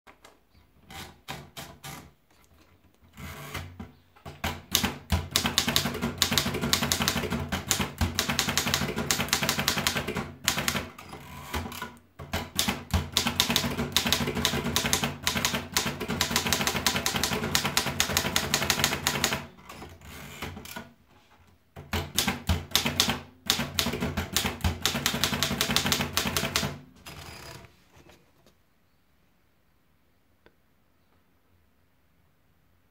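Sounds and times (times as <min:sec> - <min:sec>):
typewriter key strikes: 0:12.2 - 0:19.4, 0:21.8 - 0:26.8.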